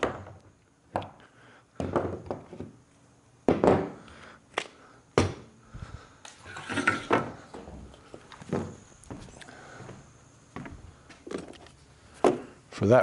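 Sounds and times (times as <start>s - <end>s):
tools and sheet metal clattering: 6.4s - 7.3s.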